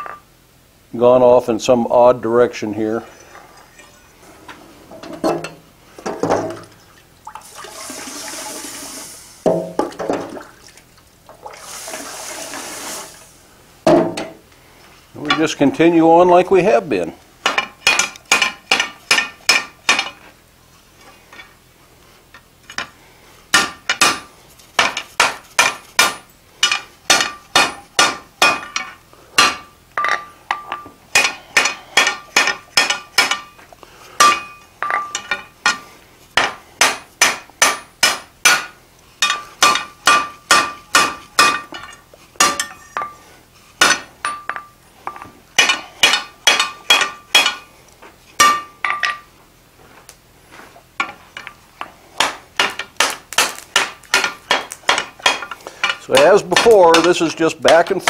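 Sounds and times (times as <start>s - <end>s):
hammer striking metal on anvil: 23.5s - 33.5s, 34.2s - 35.8s, 36.4s - 41.8s, 42.4s - 43.2s, 43.8s - 44.7s, 45.6s - 47.7s, 48.4s - 49.2s, 52.2s - 58.0s.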